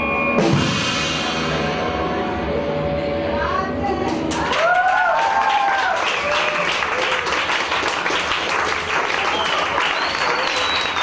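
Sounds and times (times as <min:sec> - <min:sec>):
crowd applauding and cheering: 0:04.3 - 0:11.0
shouted whoops: 0:04.5 - 0:07.3.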